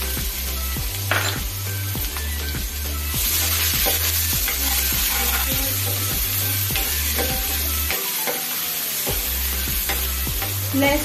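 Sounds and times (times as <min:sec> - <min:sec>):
vegetables sizzling in oil: 0:00.0 - 0:11.0
spatula scraping and tapping pan: 0:03.2 - 0:11.0.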